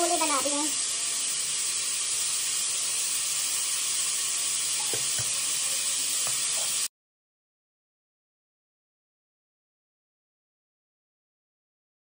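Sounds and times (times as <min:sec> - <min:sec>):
cooking sizzle on stove: 0:00.0 - 0:06.9.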